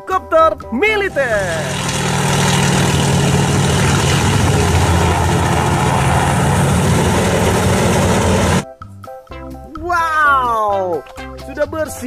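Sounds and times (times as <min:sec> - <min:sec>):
helicopter flying low past: 0:01.1 - 0:08.6.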